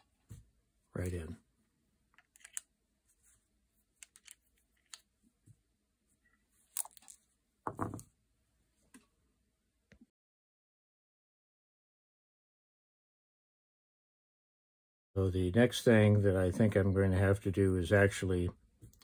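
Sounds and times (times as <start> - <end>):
metallic cartridge clicks and rattles: 2.2 - 2.7.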